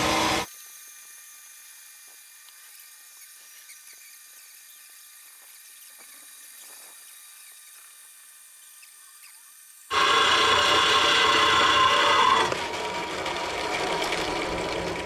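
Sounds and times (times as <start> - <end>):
bandsaw whine: 0.0 - 0.5, 9.9 - 15.0
blade ticks and squeaks: 0.5 - 10.1.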